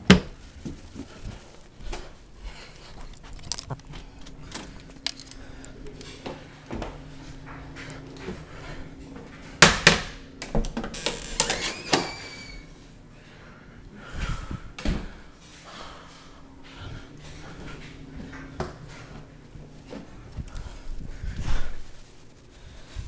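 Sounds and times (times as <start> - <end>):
steady low hum: 0.0 - 11.0, 12.6 - 23.0
short squeak: 11.5 - 12.7.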